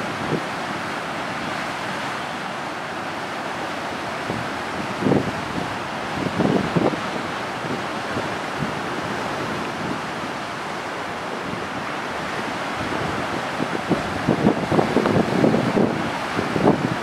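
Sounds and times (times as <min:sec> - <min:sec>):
choppy waves: 0:00.0 - 0:17.0
wind buffeting microphone: 0:04.2 - 0:17.0.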